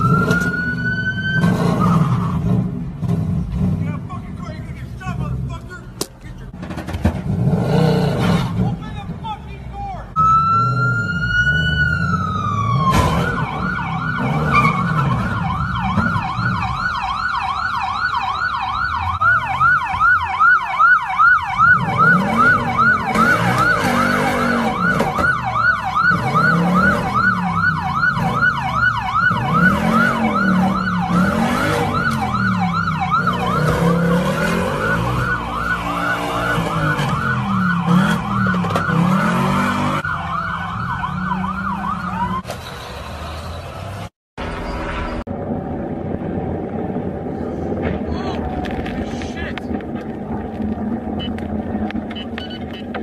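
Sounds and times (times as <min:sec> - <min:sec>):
lower siren wailing: 0:00.0 - 0:02.6, 0:10.2 - 0:42.5
police siren wailing and yelping: 0:00.0 - 0:02.6, 0:10.2 - 0:42.5.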